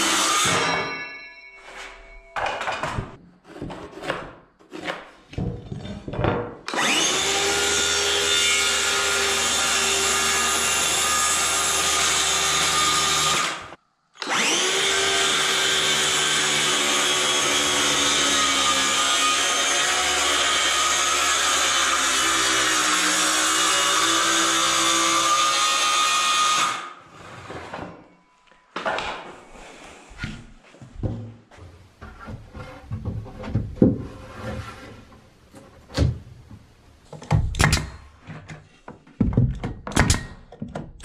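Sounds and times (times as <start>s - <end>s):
circular saw cutting wood: 0.0s - 0.8s, 6.7s - 27.6s.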